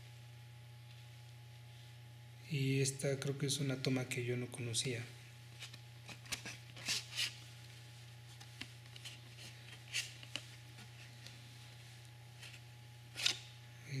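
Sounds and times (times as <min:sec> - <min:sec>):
card sleeve and disc rustling: 0:05.6 - 0:07.4, 0:08.3 - 0:11.3, 0:12.4 - 0:13.4.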